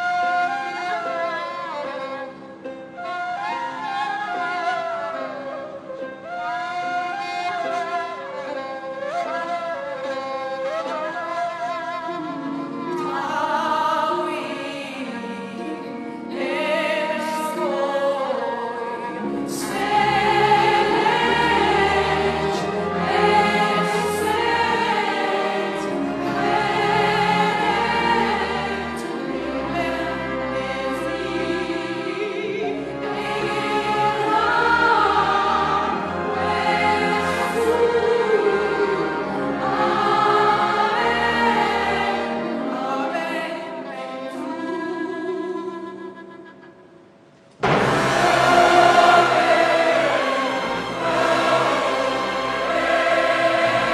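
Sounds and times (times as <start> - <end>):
choir and orchestra: 0.0 - 53.9
operatic soprano singing: 10.7 - 47.0, 47.6 - 53.9.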